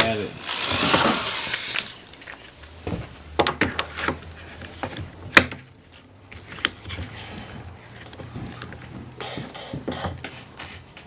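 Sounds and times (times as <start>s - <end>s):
rustling scrape: 0.4s - 2.5s.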